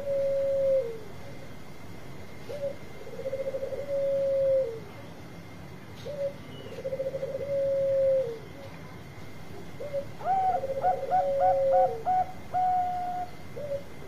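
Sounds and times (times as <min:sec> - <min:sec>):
higher-pitched dove calling: 0:00.0 - 0:01.2, 0:02.4 - 0:04.9, 0:06.0 - 0:08.5, 0:09.8 - 0:14.0
dove cooing: 0:00.0 - 0:01.6, 0:02.4 - 0:05.0, 0:06.0 - 0:08.8, 0:09.6 - 0:14.0.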